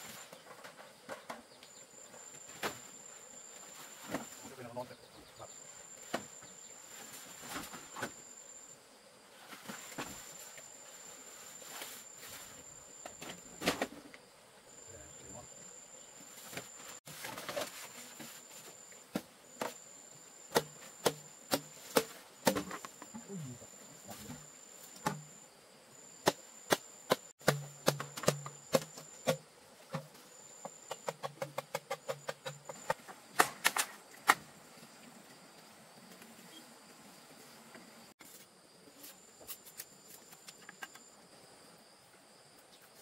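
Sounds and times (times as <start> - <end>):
sharp knocks: 26.2 - 30.2.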